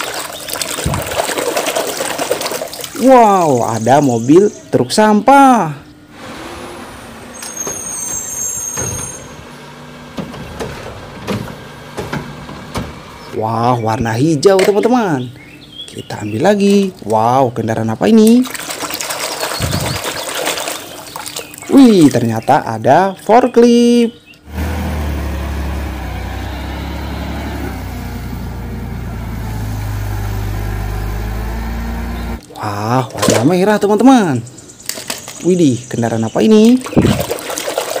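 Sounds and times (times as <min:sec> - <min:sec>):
garbage truck running: 0:05.9 - 0:17.3, 0:24.2 - 0:35.5
high squeal: 0:06.2 - 0:09.6.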